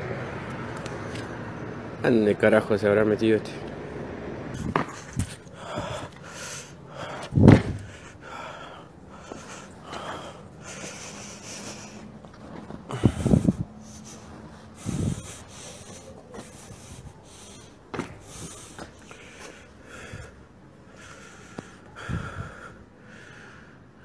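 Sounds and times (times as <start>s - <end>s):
loud bumps: 4.6s - 6.3s, 7.0s - 8.2s, 17.8s - 19.0s
phone handling noise and rustling: 4.6s - 6.3s.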